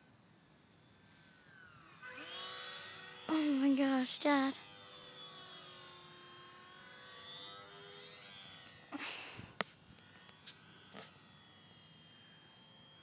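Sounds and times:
model plane motor droning: 0:00.0 - 0:13.0.

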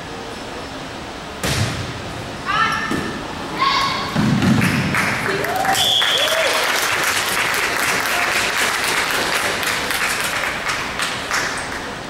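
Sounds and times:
crowd applauding: 0:04.6 - 0:12.0.

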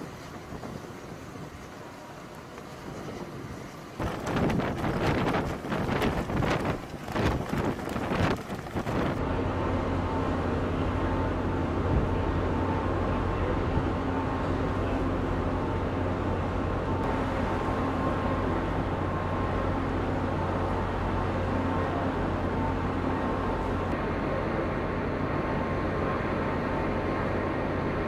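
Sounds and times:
engine drone: 0:00.0 - 0:28.0
wind buffeting microphone: 0:02.9 - 0:09.3.

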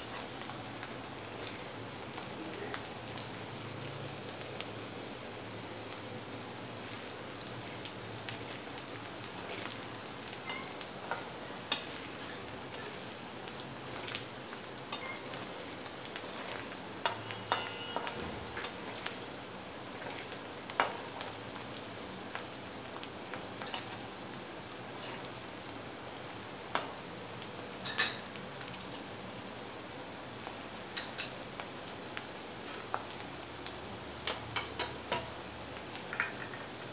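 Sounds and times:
onions sizzling in oil: 0:00.0 - 0:36.9
spatula scraping pan: 0:13.8 - 0:19.2, 0:19.9 - 0:21.2, 0:24.9 - 0:25.3.

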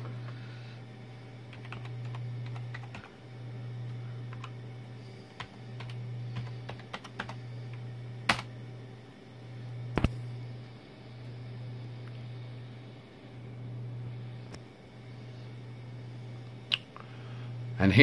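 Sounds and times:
steady low hum: 0:00.0 - 0:18.0
computer keyboard keystrokes: 0:01.5 - 0:03.1, 0:05.4 - 0:07.4, 0:08.3 - 0:08.5.

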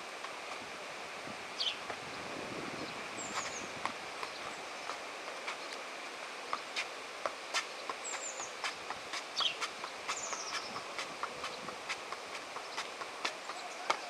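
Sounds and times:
outdoor background noise: 0:00.0 - 0:14.0
bird chirping: 0:01.6 - 0:02.2, 0:02.8 - 0:04.9, 0:07.7 - 0:08.7, 0:09.4 - 0:11.7
ball tapping on foot: 0:06.5 - 0:14.0.

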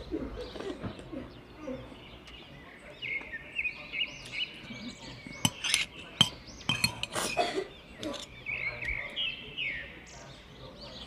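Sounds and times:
songbirds chirping and trilling: 0:00.0 - 0:11.0
cutlery clinking on glass dish: 0:05.4 - 0:08.3.

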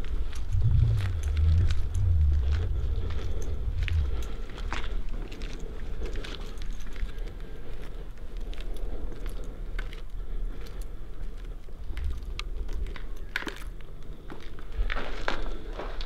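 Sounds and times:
steady low rumble: 0:00.0 - 0:06.3
crackles and clicks: 0:00.0 - 0:07.2
footsteps: 0:00.4 - 0:05.6.

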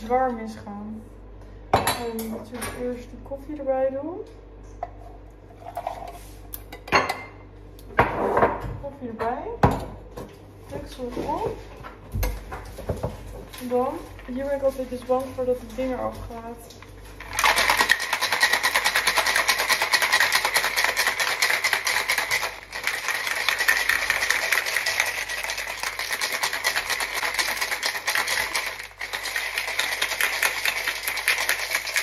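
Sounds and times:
ice rattling in cocktail shaker: 0:17.2 - 0:32.0.

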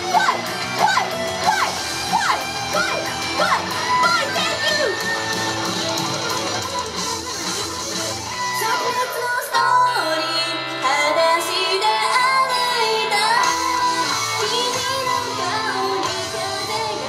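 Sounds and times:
upbeat pop song over pa: 0:00.0 - 0:17.0
young female voices singing: 0:08.6 - 0:17.0.

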